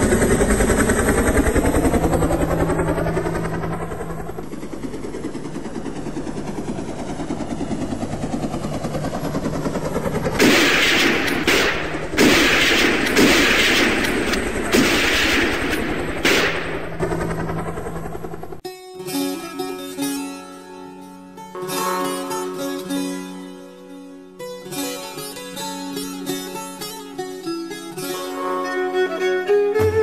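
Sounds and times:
vehicle engine running: 0.0 - 18.6
rapid gunfire bursts: 10.4 - 17.4.

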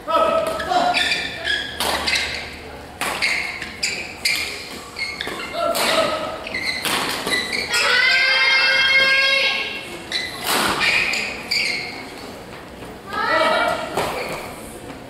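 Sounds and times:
voices echoing in hall: 0.0 - 15.0
racket hitting shuttlecock: 0.4 - 2.4, 5.2 - 7.6.

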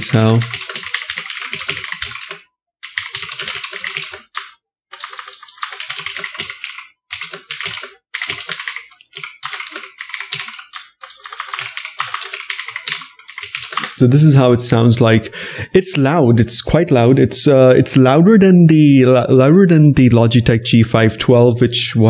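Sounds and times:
mechanical keyboard typing: 0.0 - 14.0.

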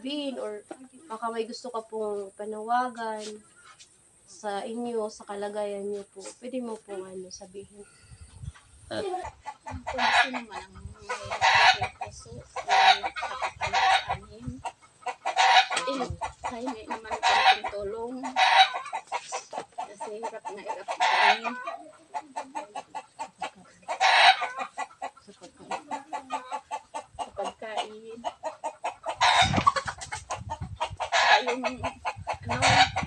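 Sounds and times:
chickens clucking: 0.0 - 33.0.

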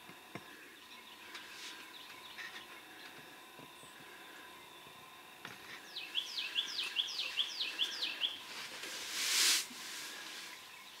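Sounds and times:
short rush of hissing noise: 8.5 - 10.6.

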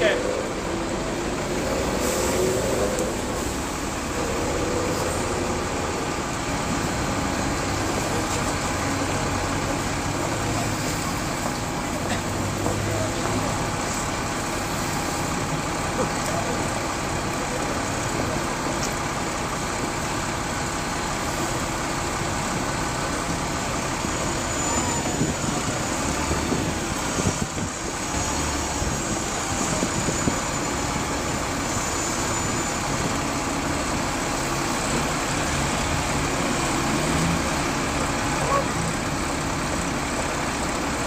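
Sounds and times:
bus engine idling: 0.0 - 41.0
city street traffic: 0.0 - 41.0.

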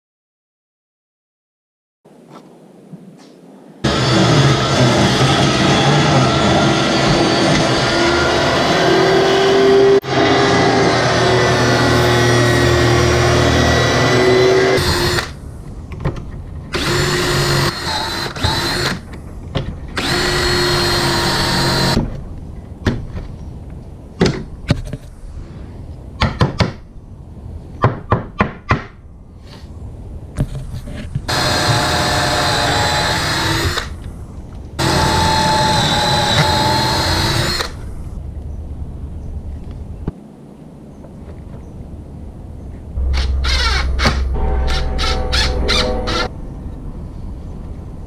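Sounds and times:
table saw cutting wood: 3.8 - 15.4, 20.0 - 22.0, 31.3 - 33.9, 34.8 - 37.8, 43.1 - 46.3
cordless drill boring: 3.9 - 9.2, 10.0 - 15.4, 16.8 - 19.0, 20.0 - 22.0, 31.3 - 34.0, 34.8 - 37.8.

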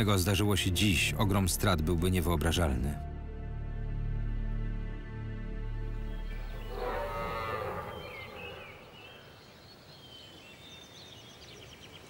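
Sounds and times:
birds chirping: 5.8 - 12.0
bird trill: 6.1 - 12.0
low animal call: 6.3 - 9.4.

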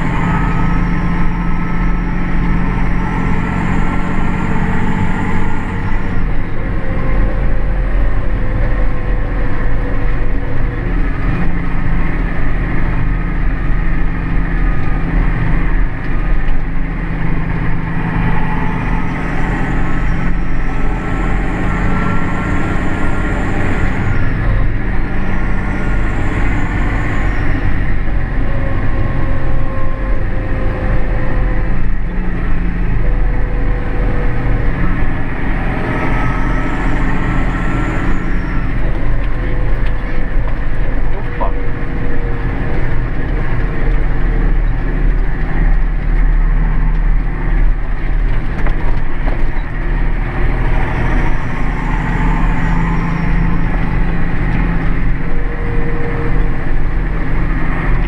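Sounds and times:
faint whine: 0.0 - 58.0
tractor diesel engine running: 0.0 - 58.0.

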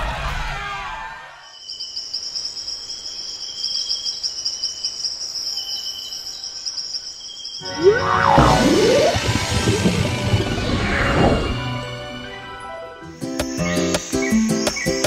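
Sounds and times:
insects chirping: 1.4 - 8.2
cartoon sound effects: 7.6 - 9.9
music: 7.6 - 15.0.

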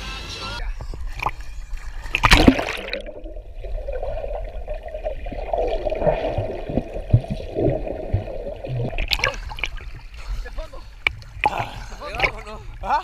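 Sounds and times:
low underwater knocks: 0.8 - 9.8
underwater gurgling and bubbles: 0.8 - 13.0
water splash: 1.0 - 10.2.

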